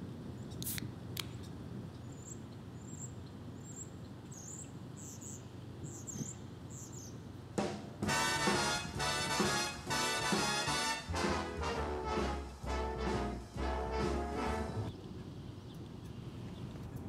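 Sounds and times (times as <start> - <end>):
small birds chirping: 0.4 - 7.3.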